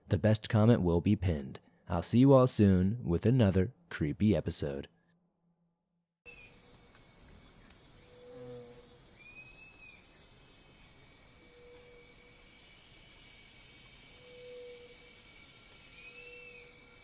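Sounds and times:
insects chirring: 0:06.3 - 0:17.0.

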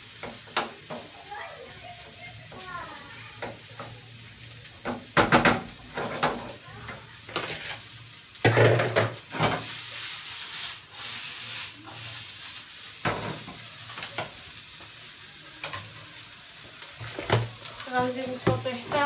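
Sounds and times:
food sizzling in a pan: 0:00.0 - 0:19.0.

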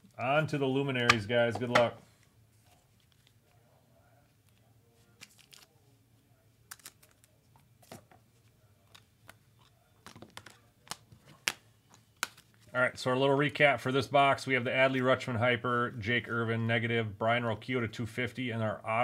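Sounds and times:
cards and packaging handled: 0:00.9 - 0:03.8, 0:04.4 - 0:05.9, 0:06.6 - 0:12.8.

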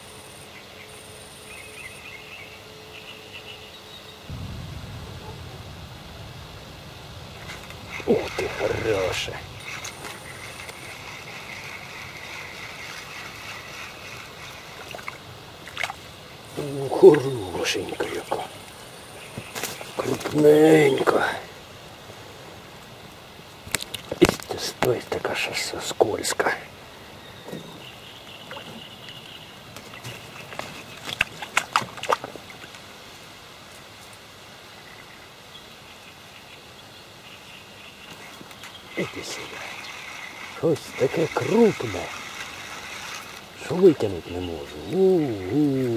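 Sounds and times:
faint high drone: 0:00.0 - 0:14.9
faint high whine: 0:00.0 - 0:23.5
wind hiss: 0:00.0 - 0:45.9
flowing water: 0:04.4 - 0:27.2, 0:27.8 - 0:35.5, 0:37.7 - 0:45.9
small water splashes: 0:07.2 - 0:18.8, 0:28.4 - 0:32.9.

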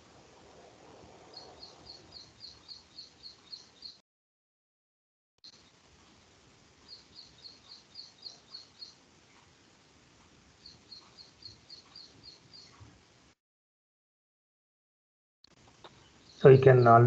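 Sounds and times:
faint background hiss: 0:00.0 - 0:04.0, 0:05.5 - 0:13.4, 0:15.5 - 0:17.0
bird chirping: 0:01.1 - 0:04.0, 0:06.7 - 0:09.4, 0:10.5 - 0:12.9, 0:15.8 - 0:17.0.

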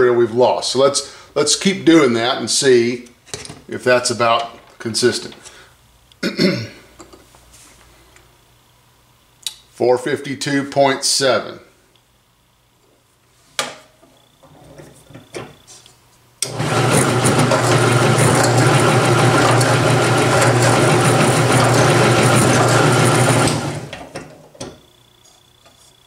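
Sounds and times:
drill press motor running: 0:16.4 - 0:24.4.

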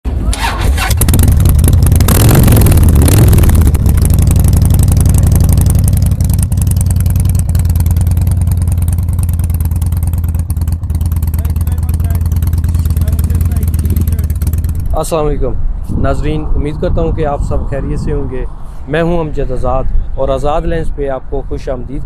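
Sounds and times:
motorcycle engine revving and idling: 0:00.1 - 0:15.1.

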